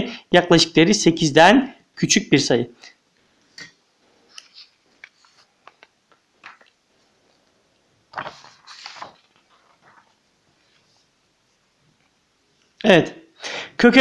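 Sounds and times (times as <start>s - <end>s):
paper rustling: 4.2s - 11.1s
light ticks of paper: 4.3s - 10.9s.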